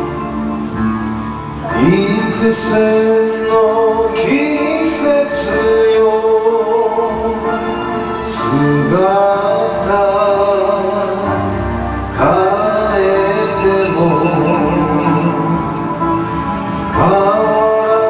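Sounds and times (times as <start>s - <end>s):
karaoke backing track: 0.0s - 18.0s
man singing karaoke: 1.7s - 16.1s, 16.8s - 18.0s.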